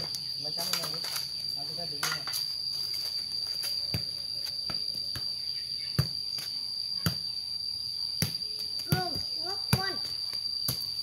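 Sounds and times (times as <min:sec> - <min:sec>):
high-pitched insect drone: 0:00.0 - 0:11.0
ball kicked by bare feet: 0:03.0 - 0:07.3, 0:08.2 - 0:11.0.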